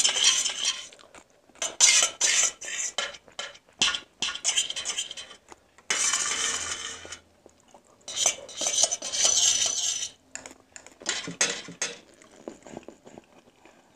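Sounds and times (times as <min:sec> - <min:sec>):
fork scraping metal plate: 0:00.0 - 0:01.0, 0:01.6 - 0:07.2, 0:08.1 - 0:10.2, 0:11.0 - 0:12.0.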